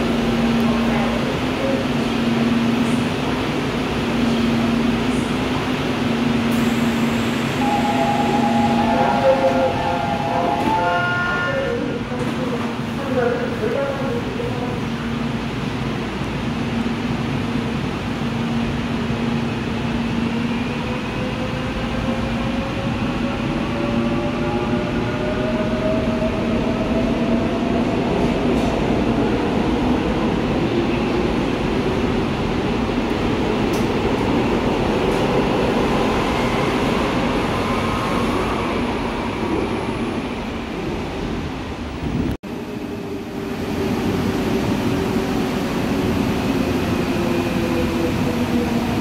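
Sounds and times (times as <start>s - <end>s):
subway cars rumbling past: 0.0s - 49.0s.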